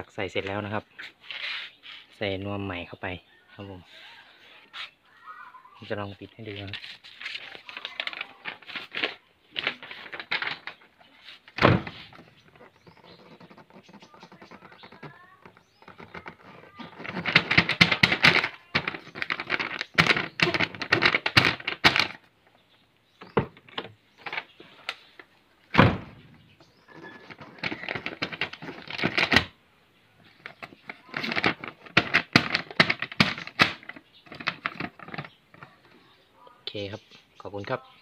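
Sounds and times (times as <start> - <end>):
paper rustling and crackling: 6.4 - 22.2, 26.9 - 29.6, 30.3 - 35.9.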